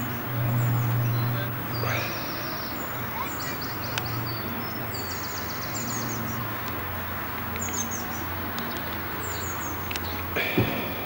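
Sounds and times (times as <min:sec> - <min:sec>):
small birds chirping: 0:00.0 - 0:06.8, 0:07.4 - 0:11.0
background hiss: 0:10.3 - 0:11.0.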